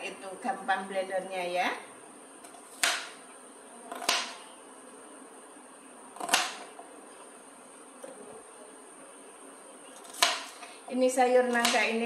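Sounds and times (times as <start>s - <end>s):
knife chopping on cutting board: 2.5s - 3.2s, 3.9s - 4.4s, 6.2s - 6.8s, 10.0s - 10.6s, 11.5s - 11.9s.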